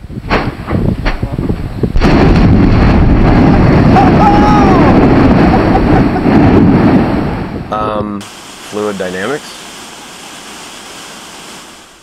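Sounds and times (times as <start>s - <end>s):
volcanic blast: 0.0s - 9.2s
volcano rumbling: 0.2s - 9.6s.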